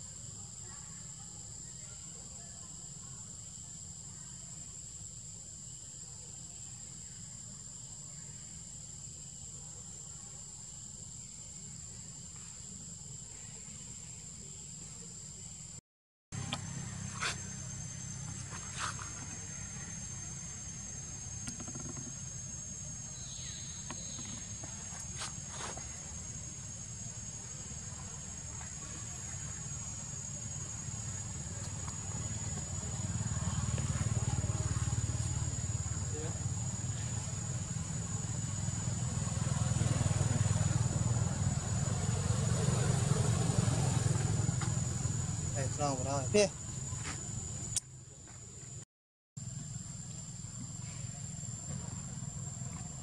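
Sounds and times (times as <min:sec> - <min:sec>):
high insect drone: 0:00.0 - 0:15.8, 0:16.4 - 0:48.8, 0:49.4 - 0:53.0
engine low rumble: 0:16.4 - 0:47.8.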